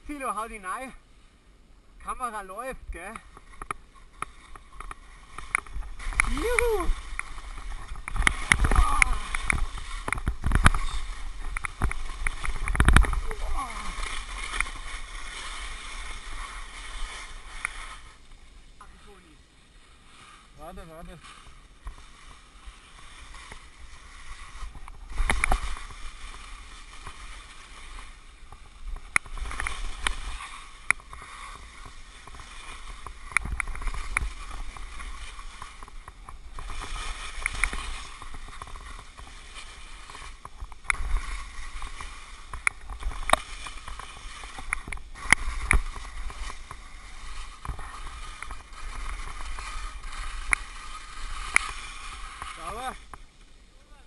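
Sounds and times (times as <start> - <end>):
skis scraping through snow: 0.0 - 1.4, 2.0 - 54.0
wind rumble on microphone: 2.8 - 15.1.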